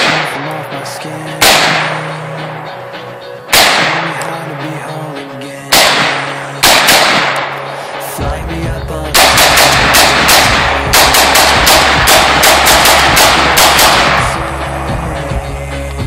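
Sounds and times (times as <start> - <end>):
rifle firing rapid shots: 0.0 - 0.5, 1.4 - 2.1, 3.5 - 4.4, 5.7 - 8.0, 9.1 - 14.4.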